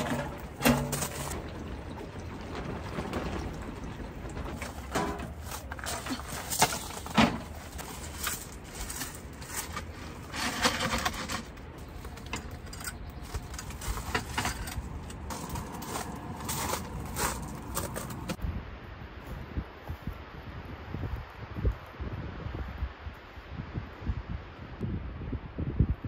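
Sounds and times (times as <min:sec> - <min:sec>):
camping gear handling clicks and knocks: 0:00.0 - 0:01.5, 0:04.3 - 0:18.4.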